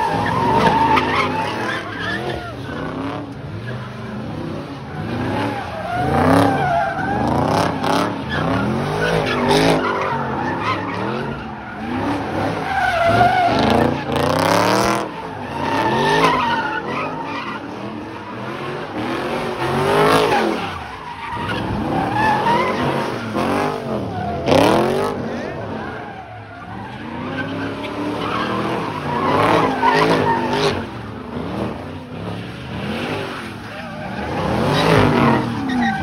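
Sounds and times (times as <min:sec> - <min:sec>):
car engines revving hard: 0:00.0 - 0:36.0
tyres squealing: 0:33.3 - 0:36.0.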